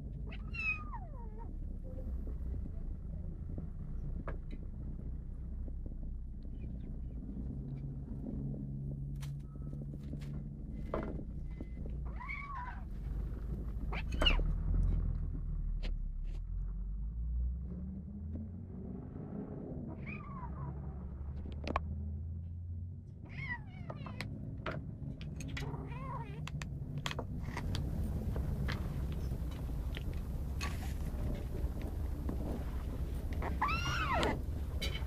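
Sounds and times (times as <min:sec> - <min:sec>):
kitten crying: 0:00.3 - 0:01.5, 0:33.4 - 0:34.4.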